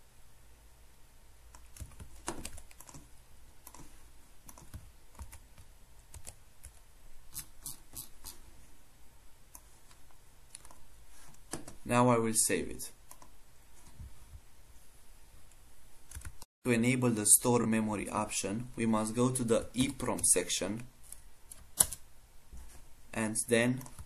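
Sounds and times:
computer keyboard keystrokes: 0:01.5 - 0:03.9, 0:04.5 - 0:06.8, 0:16.1 - 0:16.4.

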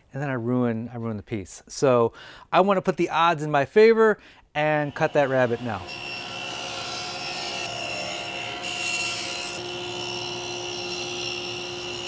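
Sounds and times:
saw blade cutting wood: 0:04.6 - 0:12.0
table saw motor whine: 0:04.8 - 0:12.0.

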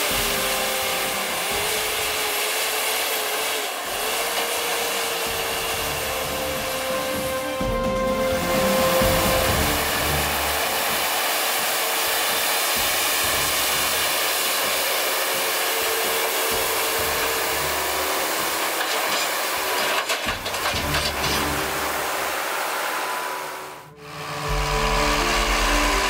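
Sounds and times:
hissing synth layer: 0:00.0 - 0:20.0, 0:21.4 - 0:26.0
deep bass pulse: 0:23.9 - 0:26.0.

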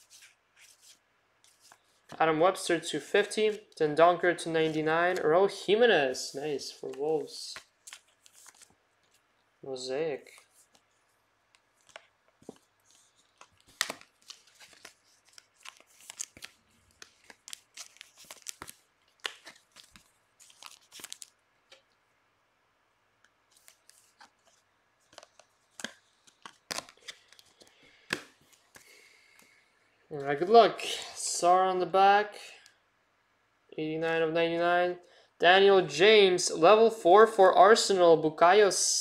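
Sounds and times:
cards and plastic sleeve rustling: 0:00.0 - 0:09.4, 0:10.0 - 0:21.9, 0:23.2 - 0:29.6.

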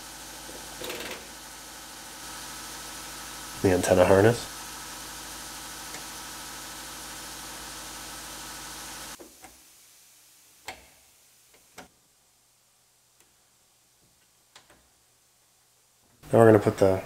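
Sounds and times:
steady machine hum: 0:00.0 - 0:09.2.

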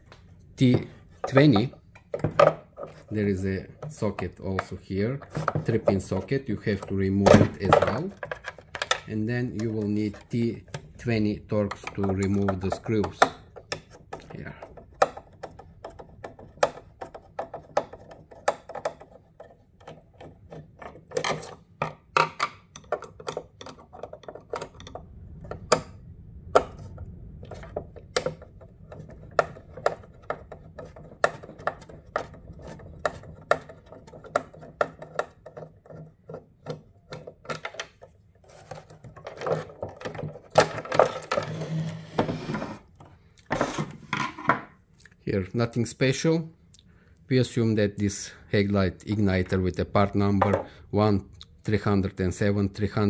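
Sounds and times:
clicks and taps on hard plastic: 0:00.1 - 0:03.1, 0:03.7 - 0:11.0, 0:11.6 - 0:41.5, 0:50.4 - 0:50.8.

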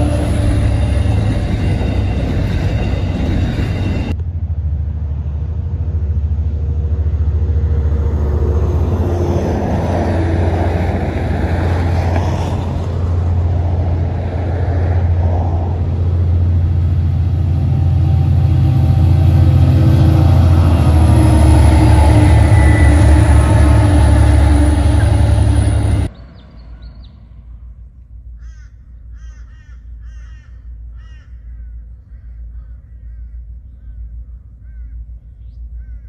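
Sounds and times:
train wagons rolling past: 0:00.0 - 0:27.6
distant diesel locomotives rumbling: 0:00.0 - 0:36.0.

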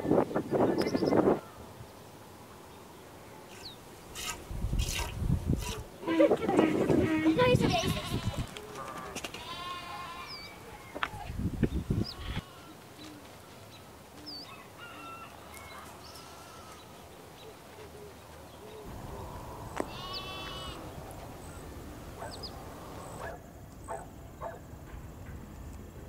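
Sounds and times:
small birds chirping: 0:00.1 - 0:24.6
farm animal calls: 0:03.4 - 0:19.0, 0:19.8 - 0:24.6.

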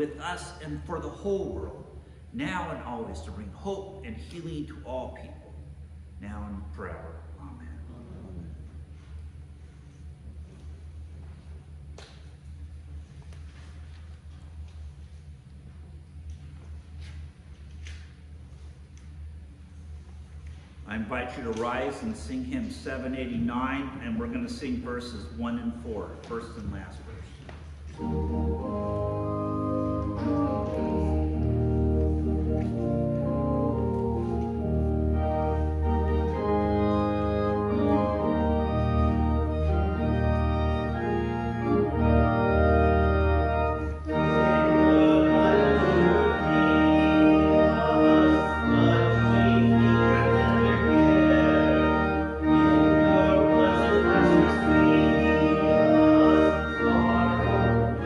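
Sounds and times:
church organ playing a hymn: 0:00.0 - 0:04.2, 0:20.9 - 0:27.3, 0:27.9 - 0:58.0.

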